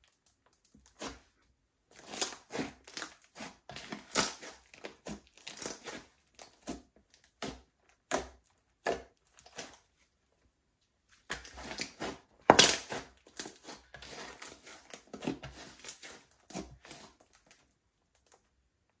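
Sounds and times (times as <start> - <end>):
slime crackling and popping: 2.0 - 6.7.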